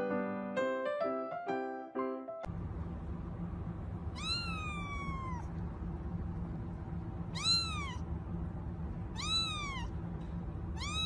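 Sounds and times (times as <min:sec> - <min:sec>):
steady low hum: 0:02.5 - 0:11.0
kitten meowing: 0:04.2 - 0:05.5, 0:07.3 - 0:08.0, 0:09.1 - 0:09.9, 0:10.8 - 0:11.0.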